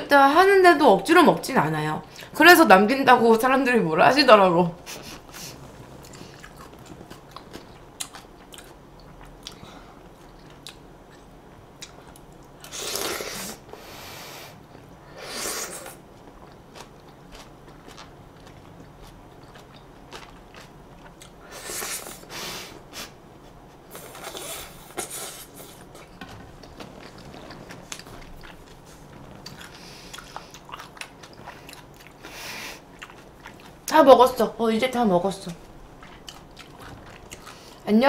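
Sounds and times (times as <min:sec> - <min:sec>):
person chewing with mouth clicks: 0:04.9 - 0:13.5, 0:15.6 - 0:22.2, 0:23.4 - 0:34.0, 0:35.9 - 0:37.9.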